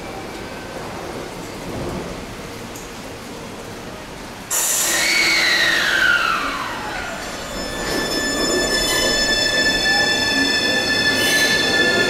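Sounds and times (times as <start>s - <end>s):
heavy rain: 0.0s - 12.0s
electric train inverter whine: 4.5s - 12.0s.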